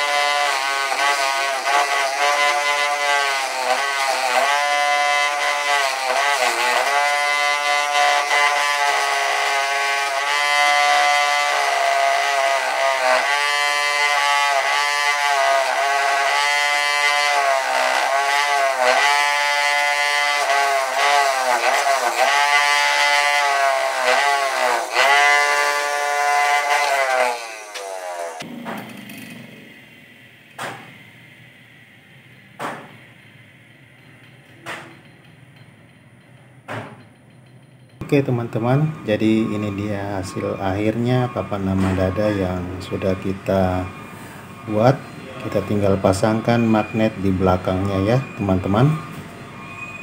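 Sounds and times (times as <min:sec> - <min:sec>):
bench grinder grinding metal: 0:00.0 - 0:29.4.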